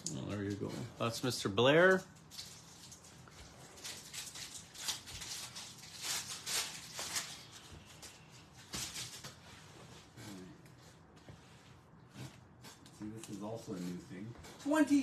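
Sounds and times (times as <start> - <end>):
foil wrapper crinkling and tearing: 1.7 - 9.2.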